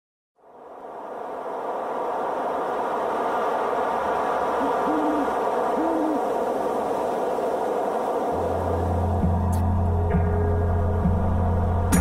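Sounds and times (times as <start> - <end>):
steady rushing background noise: 0.4 - 11.9
owl hooting: 4.6 - 6.6.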